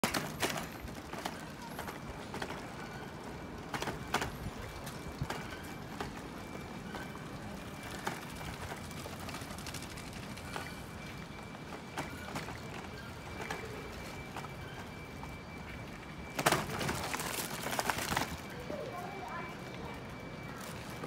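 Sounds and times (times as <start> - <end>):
bike clicks and knocks: 0.0 - 7.1, 16.3 - 18.4
bicycles rolling over brick paving: 0.0 - 21.0.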